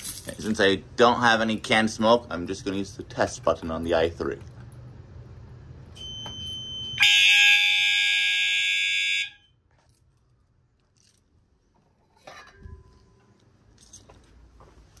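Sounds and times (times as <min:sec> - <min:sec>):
high-pitched alarm tone: 0:06.0 - 0:09.5.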